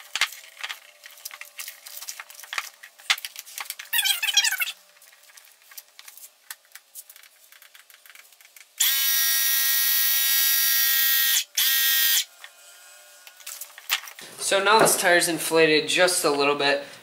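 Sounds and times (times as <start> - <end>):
electric tyre inflator buzzing: 8.8 - 13.3.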